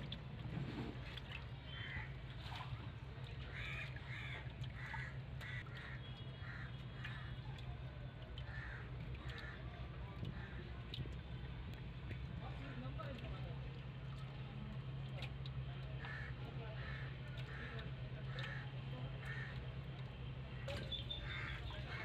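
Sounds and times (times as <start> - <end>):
crows cawing: 3.5 - 7.4, 8.4 - 9.6, 16.0 - 19.6, 20.6 - 22.0.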